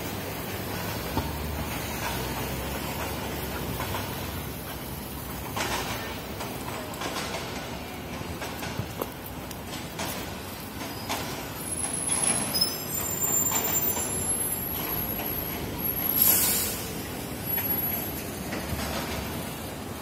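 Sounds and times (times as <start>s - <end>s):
buses and cars passing: 0.0s - 20.0s
loud hiss of air: 15.9s - 17.4s.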